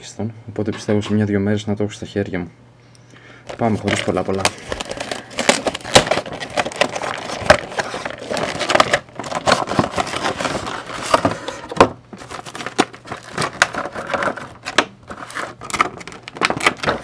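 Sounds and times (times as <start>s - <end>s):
plastic packaging crackling: 3.5s - 17.0s
plastic scraping against cardboard: 3.5s - 17.0s.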